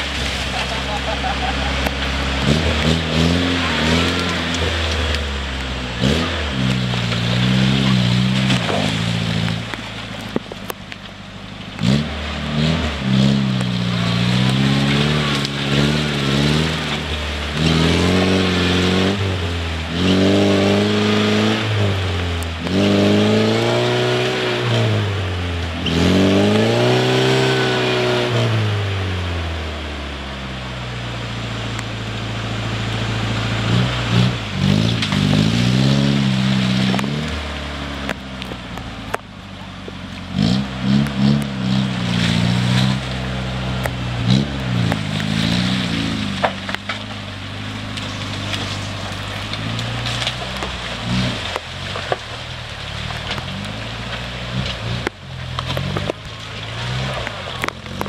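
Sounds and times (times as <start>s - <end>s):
tires spinning in mud: 0.0s - 58.0s
truck engine revving: 0.0s - 58.0s.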